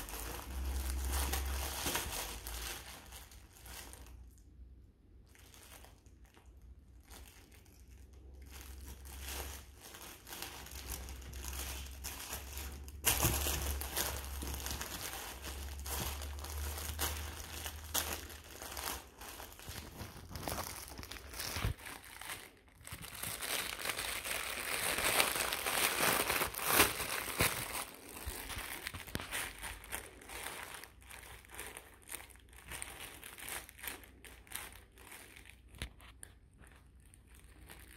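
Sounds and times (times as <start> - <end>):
plush toy crinkling: 0.0 - 37.9.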